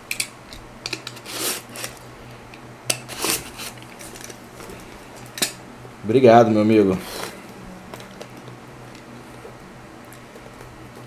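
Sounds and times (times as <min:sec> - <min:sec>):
faint steady hum: 0:00.0 - 0:11.0
box rustling and scraping: 0:03.1 - 0:04.8.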